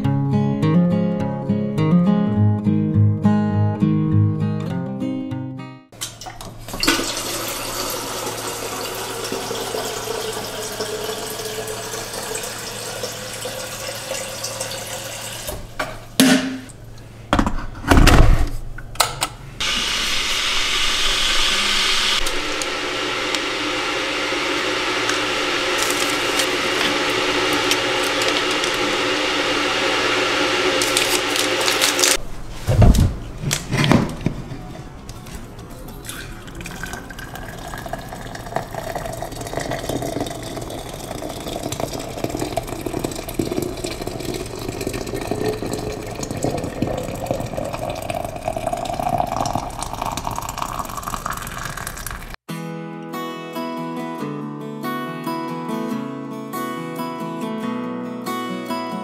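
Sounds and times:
tap water running into a kettle: 6.0 - 15.8, 21.3 - 32.2, 36.0 - 52.4
kettle heating water hiss: 6.8 - 15.8, 19.6 - 32.2, 36.8 - 52.4.

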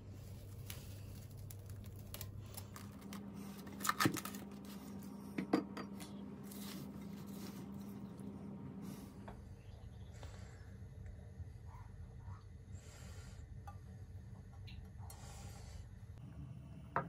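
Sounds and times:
low steady hum: 0.0 - 17.0
cling film crinkling: 0.2 - 5.1.

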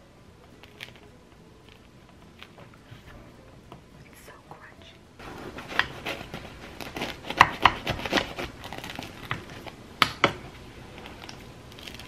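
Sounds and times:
knife sawing through crispy crust: 5.2 - 9.3
sharp crust cracks: 5.3 - 12.0.

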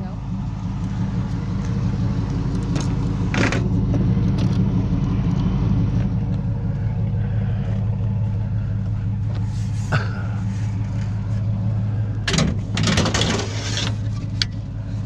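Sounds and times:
pickup truck engine idling: 0.0 - 15.0
sharp clatter: 2.6 - 4.7, 12.2 - 14.6.

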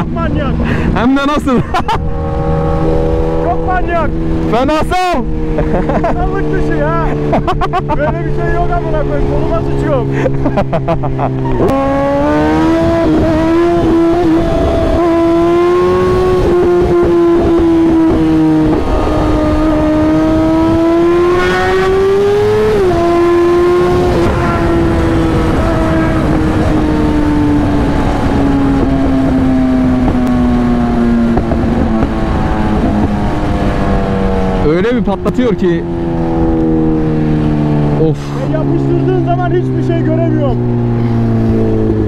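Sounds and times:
motorcycle engine at high revs: 0.0 - 42.0
wind rush over microphone: 11.3 - 38.0.

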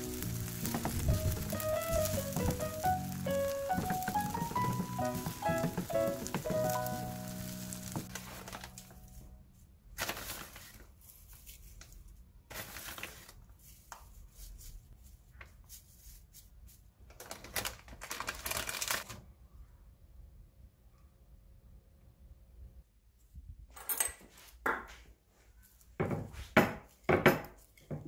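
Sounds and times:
plastic packet crinkling: 0.0 - 9.3, 10.0 - 11.0, 17.1 - 19.1
piano tune: 0.0 - 9.5.

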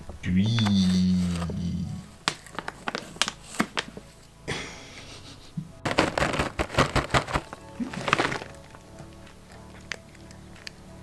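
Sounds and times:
cat crunching dry treats: 2.2 - 4.1, 5.9 - 11.0
plastic pouch rustling: 2.2 - 4.2, 5.8 - 10.7.

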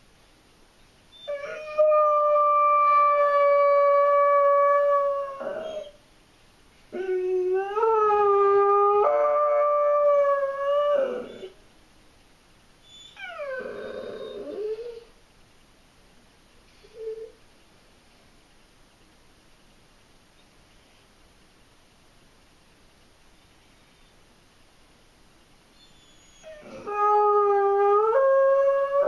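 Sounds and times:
dog whining: 1.1 - 6.0, 6.9 - 11.6, 12.8 - 15.1, 16.8 - 17.4, 25.8 - 29.0
dog howling: 1.2 - 6.0, 6.9 - 11.6, 13.2 - 15.1, 25.8 - 29.0.

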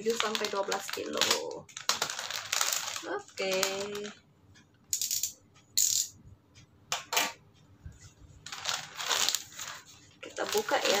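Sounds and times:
plastic packaging crinkling: 0.0 - 4.2, 8.4 - 11.0.

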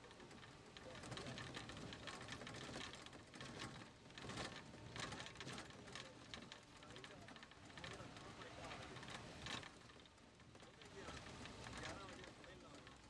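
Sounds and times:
faint irregular clicking: 0.0 - 13.0.

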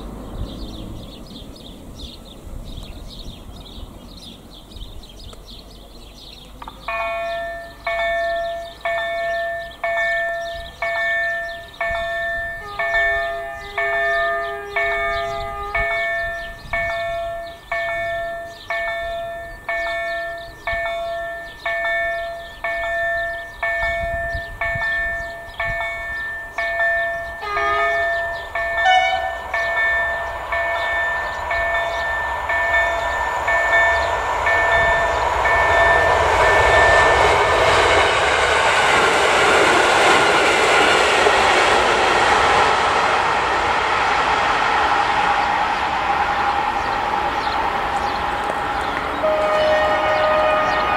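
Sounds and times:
passing train rail noise: 0.0 - 50.9
train horn blast: 12.4 - 17.1, 27.2 - 38.1, 45.3 - 50.9.

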